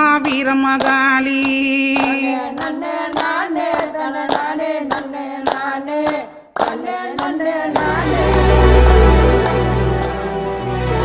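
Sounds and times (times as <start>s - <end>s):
rhythmic hand clapping: 0.0s - 11.0s
group singing devotional song: 0.2s - 10.7s
held drone: 7.8s - 11.0s.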